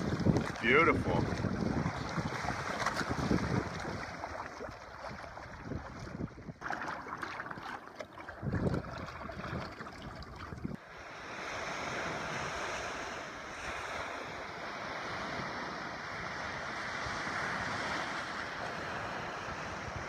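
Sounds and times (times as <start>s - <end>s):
wind buffeting microphone: 0.0s - 6.6s, 7.2s - 10.8s
choppy water: 0.0s - 20.0s
waves breaking on a beach: 0.0s - 20.0s.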